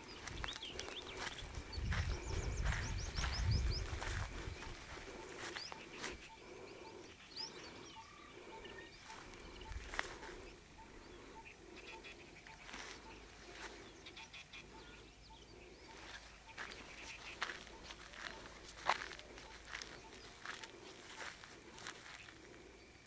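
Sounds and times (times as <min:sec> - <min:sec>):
footsteps on dry ground: 0:00.0 - 0:10.6, 0:12.0 - 0:14.1, 0:15.7 - 0:22.8
bird chirps: 0:00.0 - 0:23.0.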